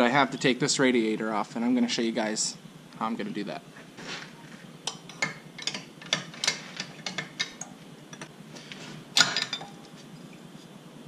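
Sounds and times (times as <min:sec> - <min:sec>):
metal tool clicking on bolt: 0:04.9 - 0:08.3.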